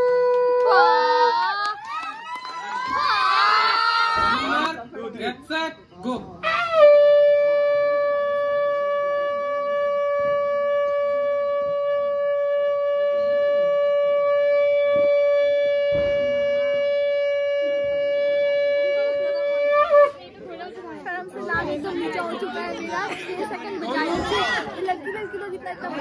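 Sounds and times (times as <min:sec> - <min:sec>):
conch shell blown: 0:00.0 - 0:01.4, 0:06.4 - 0:20.2.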